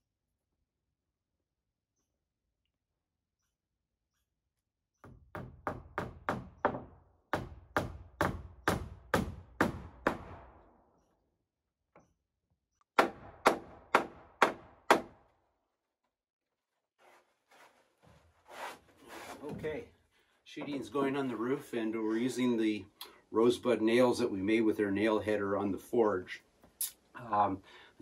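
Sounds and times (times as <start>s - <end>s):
hammer driving nails into roof sheeting: 5.0s - 10.6s, 13.0s - 15.2s.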